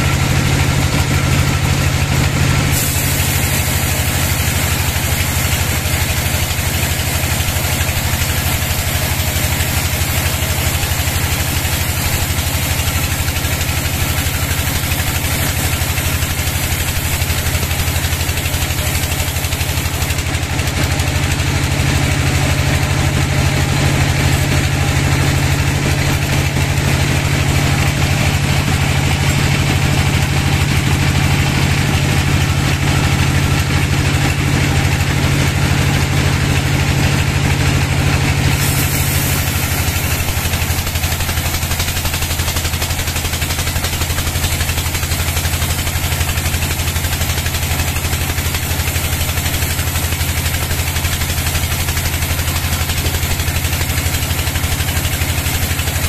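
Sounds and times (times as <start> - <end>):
band saw ripping a log: 2.2 - 34.6, 38.1 - 56.0.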